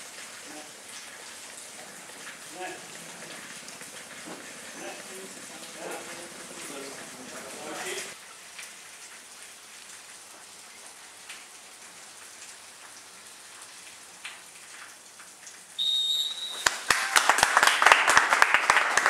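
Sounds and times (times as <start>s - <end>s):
faint outdoor hiss: 0.0s - 18.9s
referee's whistle blast: 15.8s - 16.8s
applause and clapping: 16.5s - 19.0s.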